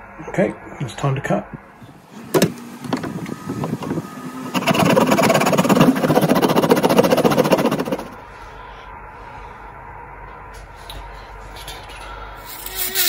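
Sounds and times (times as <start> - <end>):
hand saw cutting plastic pipe: 4.5 - 8.2.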